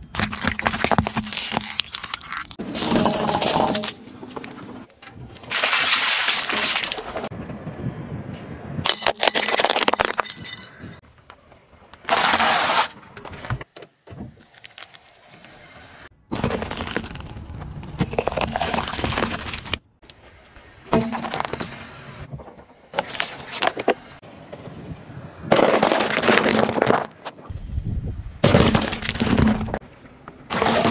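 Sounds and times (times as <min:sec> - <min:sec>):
tyre crushing objects: 0:00.1 - 0:04.7, 0:05.5 - 0:07.3, 0:16.3 - 0:19.8, 0:25.5 - 0:27.4, 0:28.4 - 0:29.8, 0:30.5 - 0:30.9.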